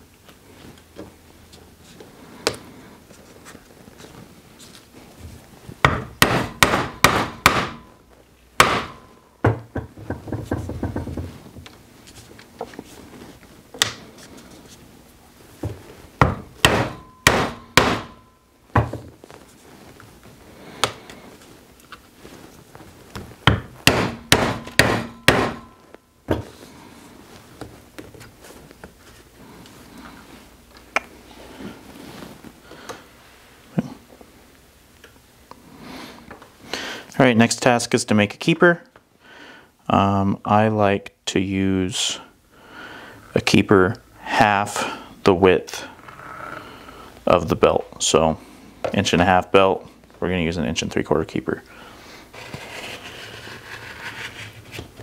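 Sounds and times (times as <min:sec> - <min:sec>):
maul striking leather punch: 0:05.9 - 0:07.8, 0:08.6 - 0:09.0, 0:16.2 - 0:18.2, 0:23.5 - 0:25.7
tools knocking: 0:08.6 - 0:11.3.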